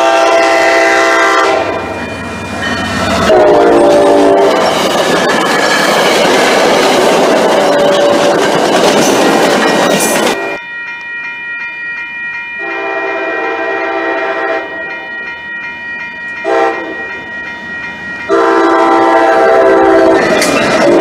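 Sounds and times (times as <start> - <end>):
train horn blasts: 0.0 - 1.9, 3.2 - 4.7, 12.6 - 14.8, 16.4 - 17.0, 18.3 - 21.0
train rushing past: 0.0 - 10.6, 12.7 - 21.0
crossing warning bell ringing: 0.0 - 21.0.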